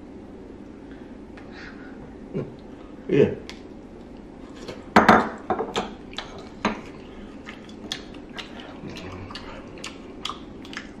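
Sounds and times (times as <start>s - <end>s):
chewing mouth sounds: 6.0s - 11.0s.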